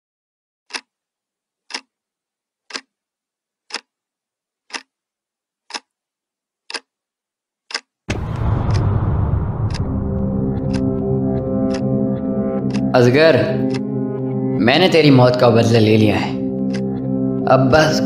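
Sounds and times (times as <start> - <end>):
wall clock ticking: 0.7 - 1.0, 1.6 - 2.0, 2.6 - 3.0, 3.6 - 4.0, 4.6 - 5.0, 5.6 - 6.0, 6.6 - 7.0, 7.6 - 8.0, 9.7 - 14.0, 16.5 - 17.2
bass-heavy background music: 8.2 - 18.0.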